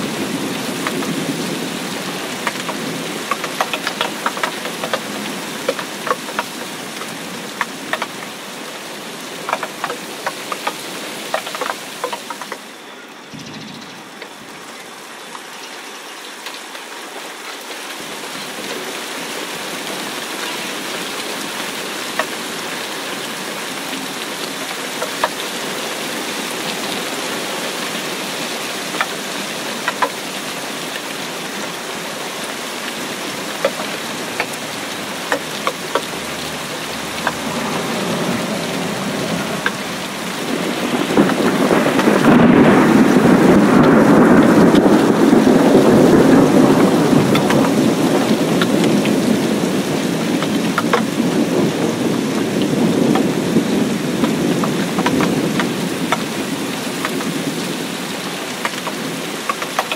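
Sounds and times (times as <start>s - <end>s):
rain pattering into puddle: 0.0s - 13.2s, 14.0s - 59.9s
sharp drip ticks: 2.4s - 8.4s, 9.4s - 12.7s, 33.5s - 38.3s.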